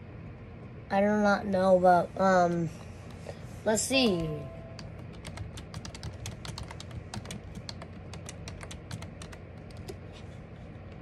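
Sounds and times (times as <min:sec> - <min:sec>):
fast keyboard typing: 0:04.2 - 0:10.1.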